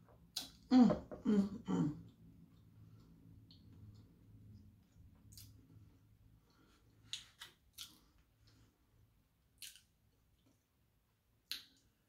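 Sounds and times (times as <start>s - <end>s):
wet lip smacks chewing: 9.6s - 9.9s.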